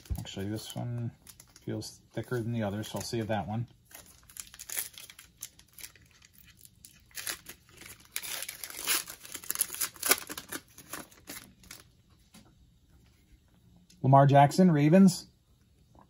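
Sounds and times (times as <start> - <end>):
foil wrapper tearing and crinkling: 0.0 - 11.9.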